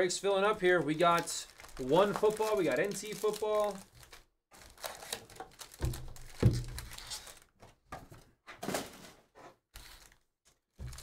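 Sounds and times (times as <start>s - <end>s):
foil packs crinkling: 0.5s - 7.5s, 10.8s - 11.0s.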